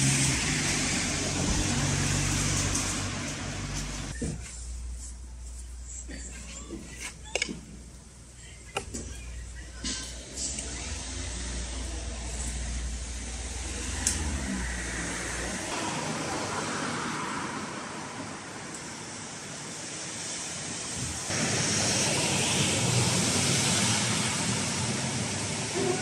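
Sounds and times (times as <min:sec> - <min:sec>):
steady rushing outdoor noise: 0:10.1 - 0:26.0.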